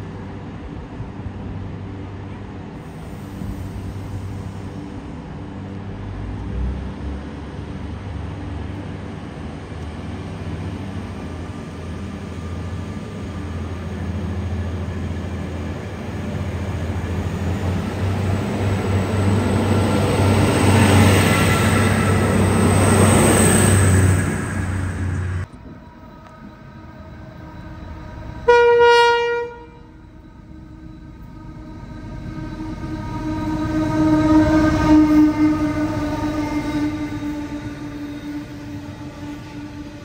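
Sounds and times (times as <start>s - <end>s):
railcar engine humming: 0.0s - 40.0s.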